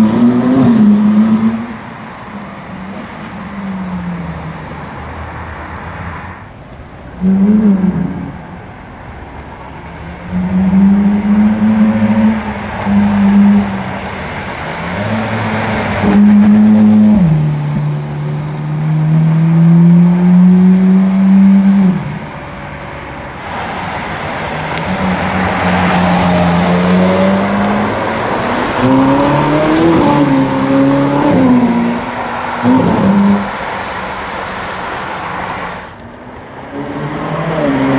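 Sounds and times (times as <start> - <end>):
car engine revving: 0.0 - 5.4, 9.8 - 37.9
sports cars driving past: 0.0 - 37.9.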